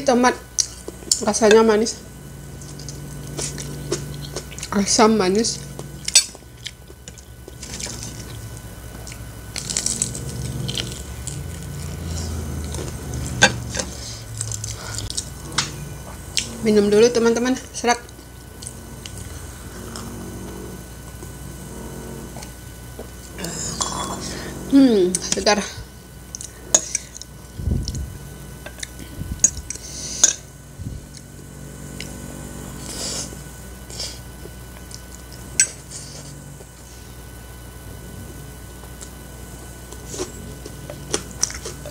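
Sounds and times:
chewing: 5.7 - 16.6
person slurping noodles: 23.3 - 24.8.

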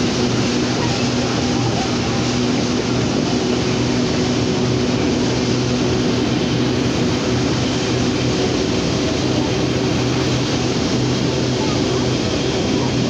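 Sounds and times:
diesel locomotive engine running: 0.0 - 13.0.

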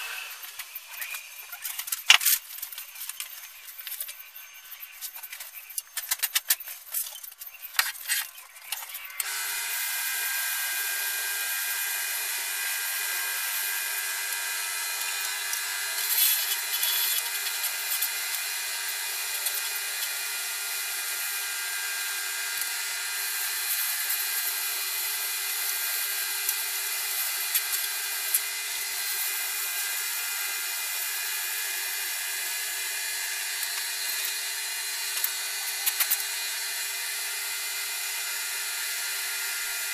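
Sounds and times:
wood lathe humming: 0.0 - 0.6, 9.2 - 39.9
sandpaper sanding wood: 9.3 - 37.5.

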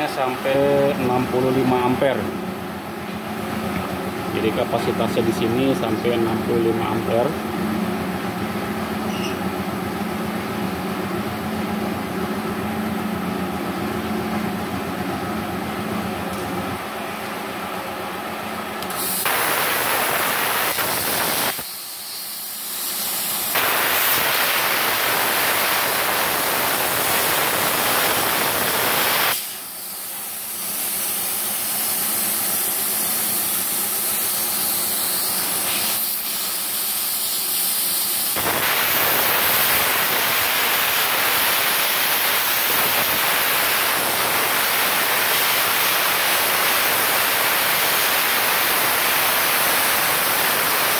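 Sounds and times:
plasma cutter hissing: 4.4 - 7.3, 18.8 - 50.9.

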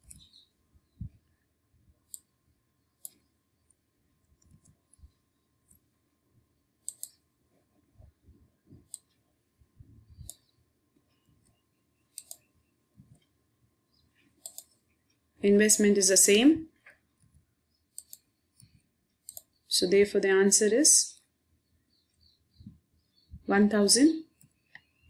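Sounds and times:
mouse and keyboard clicks: 2.1 - 2.3, 3.0 - 3.3, 6.8 - 7.2, 11.5 - 12.5, 14.4 - 14.8, 17.9 - 19.6.

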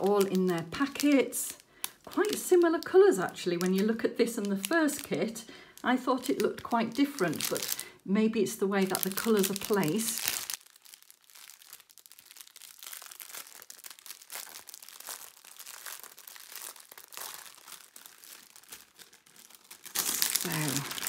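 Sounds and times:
plastic bags crinkling: 0.0 - 21.0.

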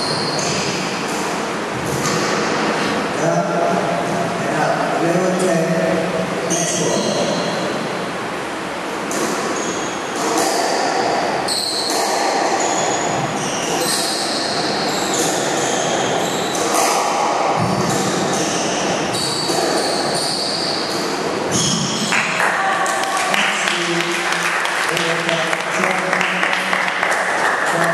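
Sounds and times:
squash ball hitting rackets and walls: 8.9 - 22.4
shoes squeaking on wooden floor: 11.5 - 17.0, 17.6 - 22.1.

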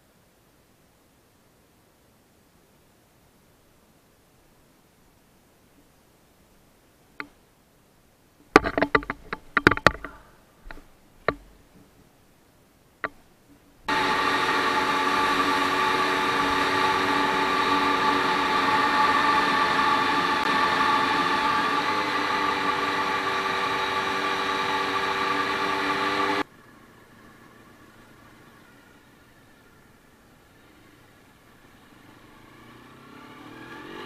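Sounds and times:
motorcycle engine running: 13.8 - 29.4.

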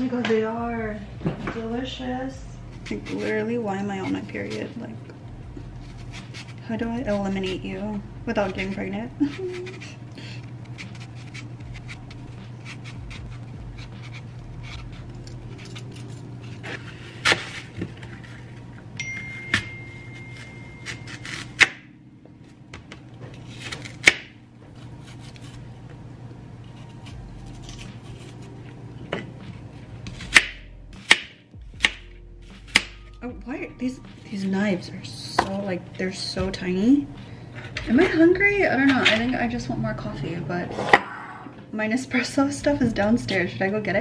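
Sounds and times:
steady low hum: 0.0 - 44.0
peeler scraping apple: 2.6 - 4.8, 5.6 - 18.6, 20.1 - 21.8, 24.8 - 25.7, 26.6 - 28.6.

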